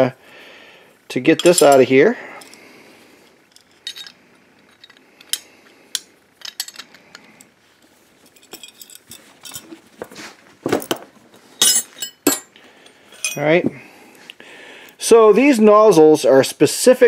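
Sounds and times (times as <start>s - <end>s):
wrenches clinking on metal: 1.3s - 1.8s, 3.5s - 5.4s, 8.3s - 9.8s, 11.6s - 12.5s, 13.1s - 13.6s
wrenches clanking down: 3.5s - 5.4s, 6.4s - 7.0s.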